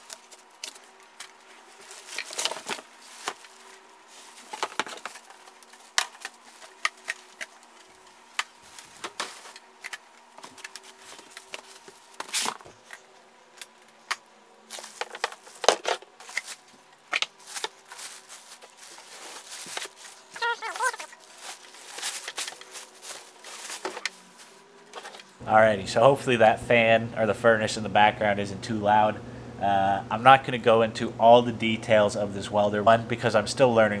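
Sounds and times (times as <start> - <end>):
cardboard rustling: 0.0 - 7.9, 8.6 - 9.7, 14.7 - 25.3
plastic wrapping crinkling: 0.0 - 13.0, 16.2 - 25.4
low background hum: 0.0 - 34.0.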